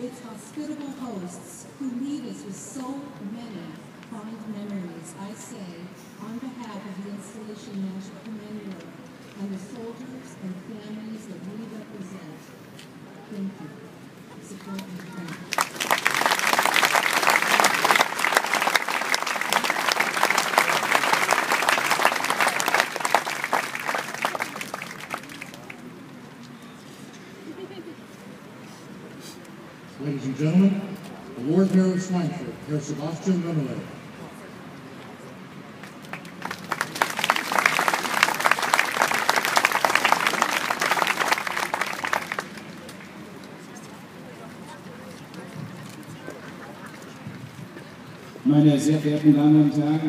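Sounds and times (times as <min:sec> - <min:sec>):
large audience applauding: 0:15.5 - 0:25.9, 0:35.8 - 0:42.9.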